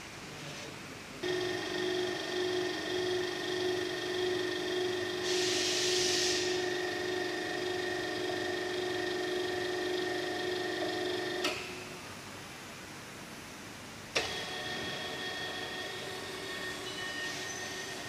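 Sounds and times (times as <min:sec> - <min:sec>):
drill motor humming: 0:01.2 - 0:11.4
brief hiss: 0:05.3 - 0:06.6.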